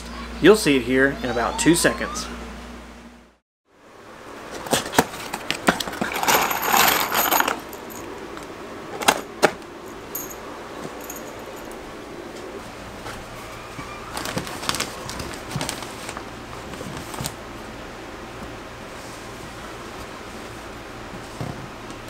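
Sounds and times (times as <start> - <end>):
screws rattling in cardboard box: 5.0 - 8.1.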